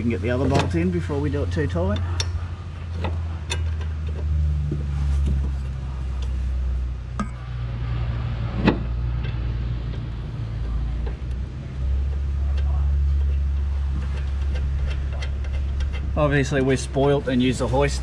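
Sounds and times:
steady low hum: 0.0 - 18.0
light metallic clicks and knocks: 1.7 - 6.4, 8.6 - 16.7.

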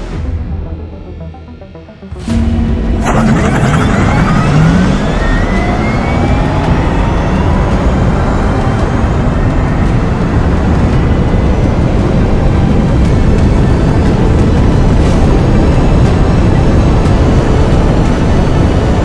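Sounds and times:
road and wind rush: 0.0 - 19.0.

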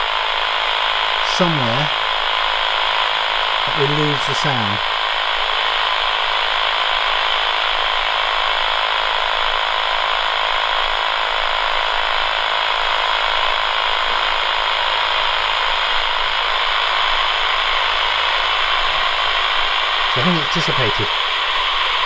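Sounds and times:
radio static hiss: 0.0 - 22.0.

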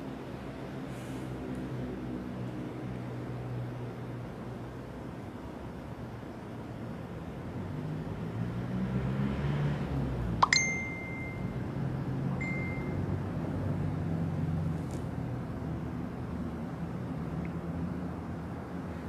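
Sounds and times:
small bell ringing: 10.4 - 11.6, 12.4 - 13.0
low steady hum: 10.4 - 13.2.

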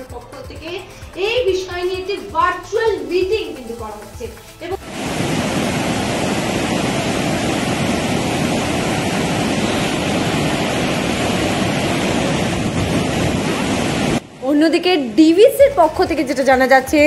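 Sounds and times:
water rushing through spillway: 4.7 - 15.2.

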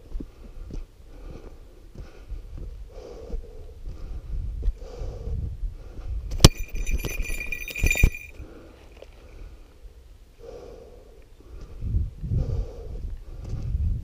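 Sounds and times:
heavy breathing: 0.2 - 6.2, 8.2 - 13.8
small metal bell ringing: 6.4 - 8.4.

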